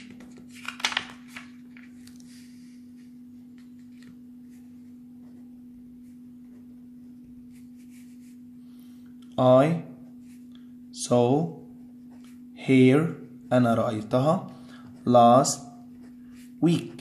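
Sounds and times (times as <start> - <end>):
steady hum: 0.0 - 17.0
marker scratching on paper: 7.4 - 8.5, 14.9 - 17.0.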